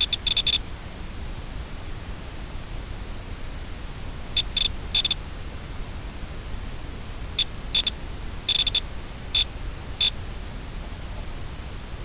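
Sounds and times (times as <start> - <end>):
short high electronic beeps: 0.0 - 0.6, 4.4 - 5.2, 8.5 - 8.8
low hiss and rumble: 0.0 - 12.0.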